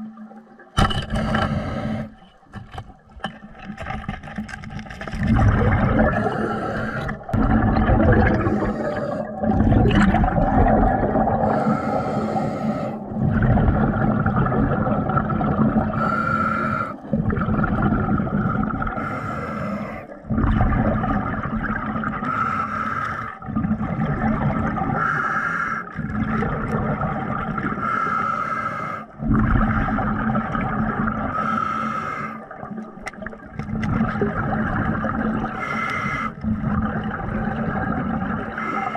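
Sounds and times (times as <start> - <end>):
air bubbling underwater: 5.1 - 11.7, 13.0 - 16.2, 17.0 - 19.2, 19.8 - 22.4, 23.4 - 25.1, 26.0 - 27.8, 32.5 - 38.7.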